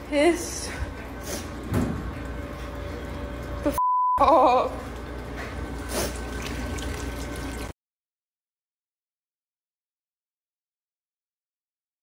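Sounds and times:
censor bleep: 3.8s - 4.2s
water dripping into a bucket: 4.7s - 7.7s.

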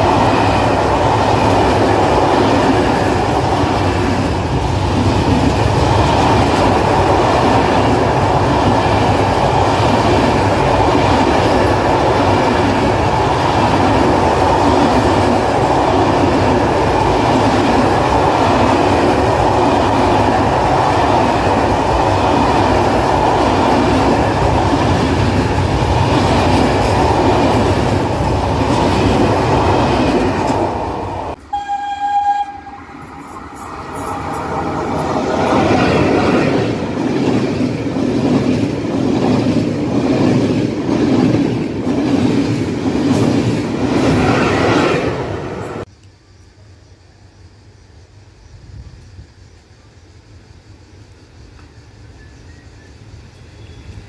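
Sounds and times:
short high tone: 31.4s - 34.5s.

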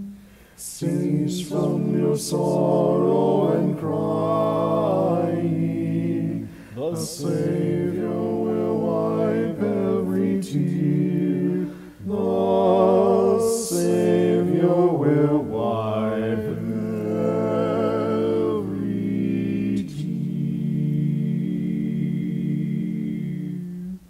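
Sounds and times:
male a cappella hymn singing: 0.0s - 24.0s.

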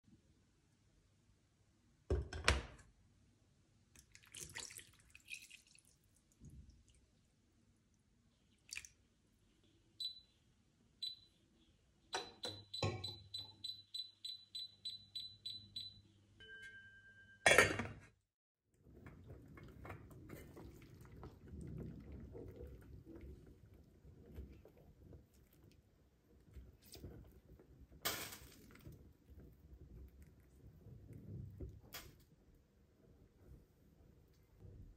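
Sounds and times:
dishes and utensils clinking: 17.4s - 18.0s.

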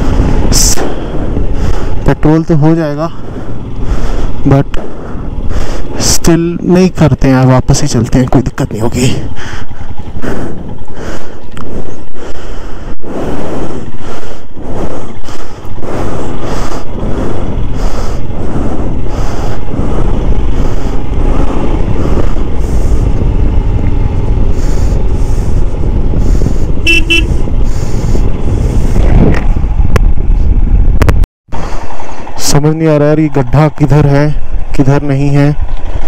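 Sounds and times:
motorcycle engine: 0.0s - 36.0s
road noise: 0.0s - 36.0s
short horn toot: 26.8s - 27.4s.

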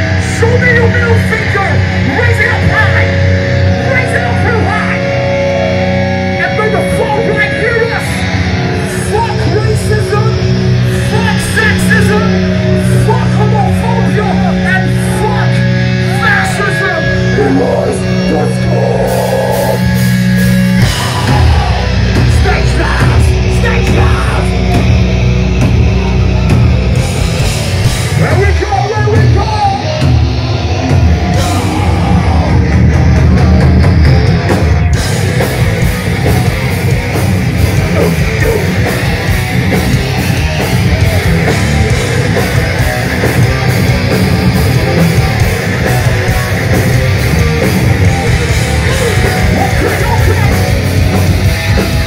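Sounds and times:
held low bass notes: 0.0s - 52.0s
punk band playing live: 0.0s - 52.0s
shouted vocals: 10.9s - 20.0s, 20.8s - 24.9s, 28.2s - 33.0s, 37.7s - 39.4s, 48.2s - 50.9s.

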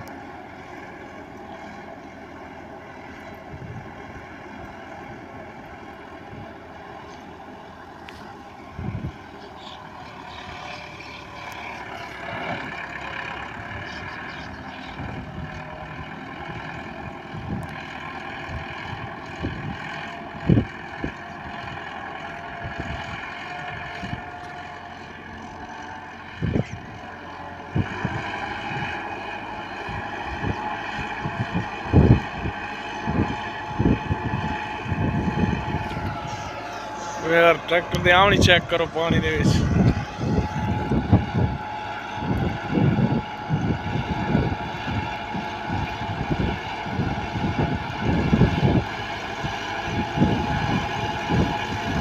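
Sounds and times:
tractor engine running under load: 0.0s - 52.0s
wind thumping on microphone: 39.5s - 41.6s.

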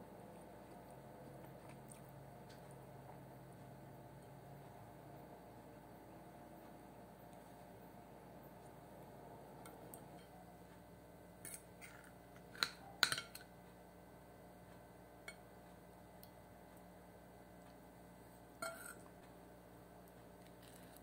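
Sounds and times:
cutlery clinking and scraping on plate: 11.4s - 13.5s, 18.6s - 19.1s.

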